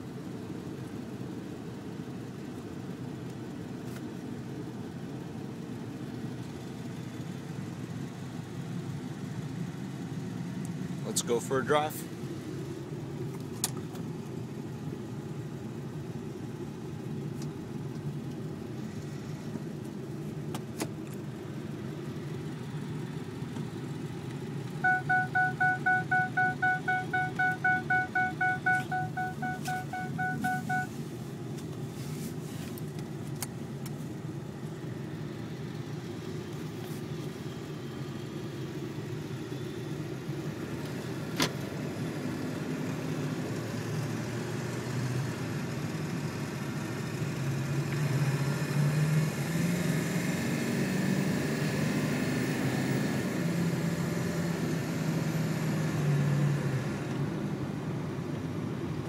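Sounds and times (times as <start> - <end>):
diesel engine rumble: 0.0 - 59.0
rapid electronic beeps: 24.8 - 30.9.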